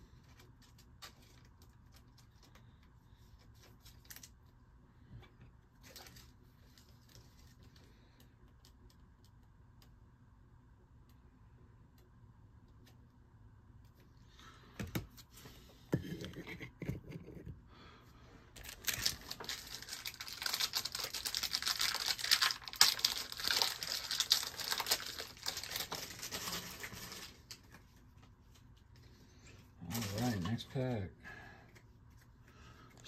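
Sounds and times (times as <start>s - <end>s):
foil wrapper tearing and crinkling: 18.6s - 27.6s.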